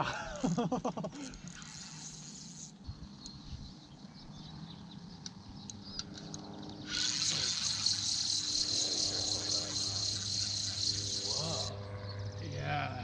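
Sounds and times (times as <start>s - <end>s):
fishing reel high whirr: 0.2s - 3.3s, 6.8s - 11.9s
fishing reel light clicks: 5.7s - 11.7s.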